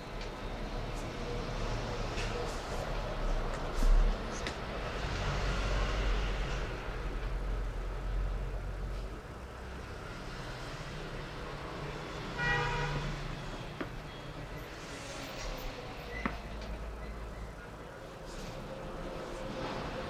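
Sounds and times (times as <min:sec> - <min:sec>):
traffic rumble: 0:00.0 - 0:20.0
vehicle horn: 0:12.3 - 0:13.4.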